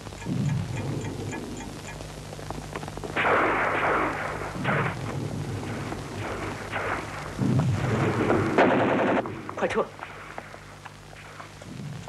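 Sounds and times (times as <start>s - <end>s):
gunshots: 3.1s - 10.5s
loud explosion blasts: 3.2s - 9.8s.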